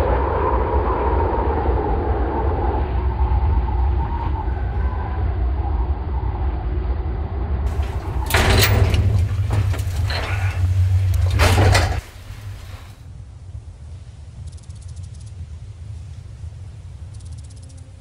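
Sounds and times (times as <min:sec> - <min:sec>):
deep steady rumble: 0:00.0 - 0:13.8.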